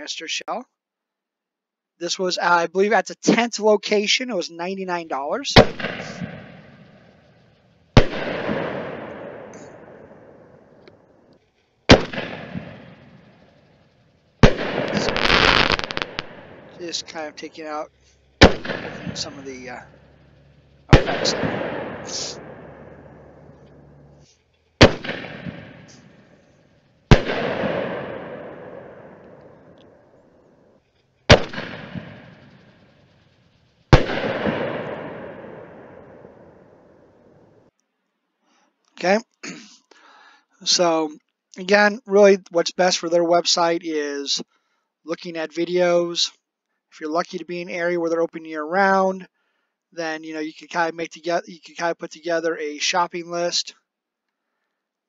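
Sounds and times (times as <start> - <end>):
firework crackling: 4.9 - 10.2, 11.5 - 23.7, 31.3 - 36.2
firework bangs: 4.9 - 10.8, 11.8 - 24.2, 24.8 - 26.4, 27.1 - 30.0, 31.3 - 33.3, 33.9 - 37.2.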